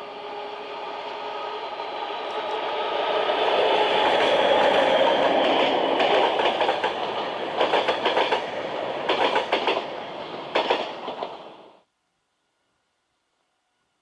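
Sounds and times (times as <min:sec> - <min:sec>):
diesel locomotive running: 0:00.0 - 0:11.5
train coaches rushing past: 0:00.0 - 0:11.8
wheels clattering over rail joints: 0:04.2 - 0:09.9.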